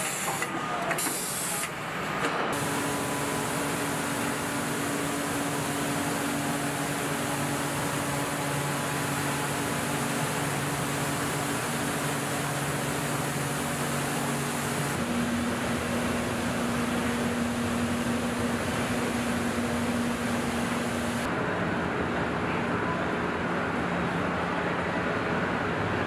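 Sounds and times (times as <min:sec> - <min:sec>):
ventilation and machinery rushing: 0:01.8 - 0:22.5.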